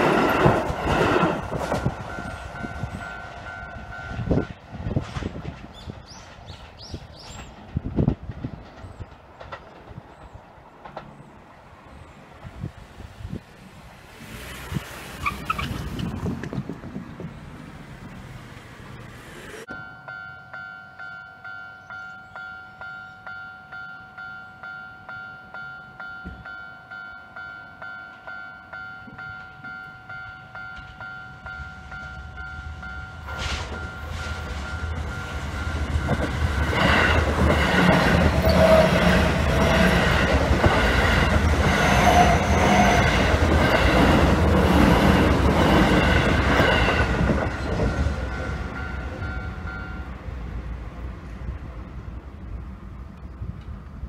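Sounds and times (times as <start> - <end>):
train wheels clacking on rail joints: 0.0 - 11.3, 29.0 - 49.8
electric train passing: 0.0 - 54.0.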